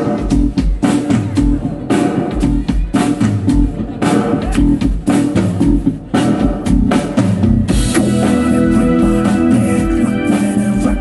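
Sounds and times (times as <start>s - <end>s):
bass guitar: 0.0s - 11.0s
drum kit beat: 0.0s - 11.0s
keyboard: 0.0s - 11.0s
electric guitar: 6.4s - 11.0s.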